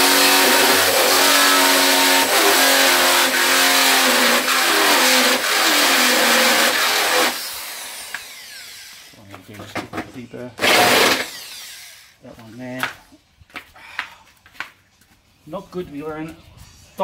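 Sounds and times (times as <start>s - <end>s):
electric drill motor whine: 0.0s - 9.1s, 10.6s - 12.1s
drill grinding through sheet metal: 0.0s - 9.2s, 10.6s - 12.2s.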